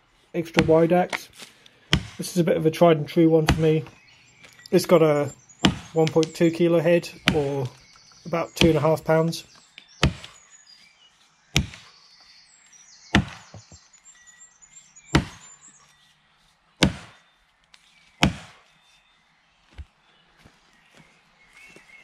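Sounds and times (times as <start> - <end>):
axe chopping into tree trunk: 0.5 - 2.4, 3.4 - 3.9, 5.6 - 6.4, 7.2 - 7.6, 10.0 - 10.4, 11.6 - 11.9, 13.1 - 13.8, 15.1 - 15.5, 16.8 - 17.2, 18.2 - 18.6.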